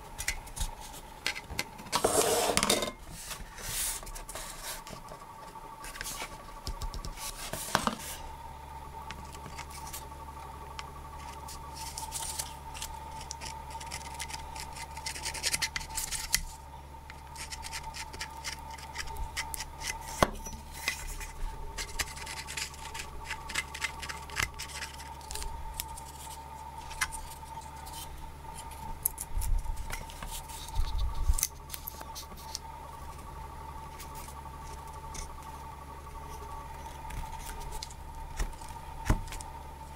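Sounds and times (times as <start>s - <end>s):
faint steady hum: 0.0s - 39.9s
scratching and rubbing on blade: 0.2s - 2.6s, 11.2s - 16.5s, 17.3s - 32.6s.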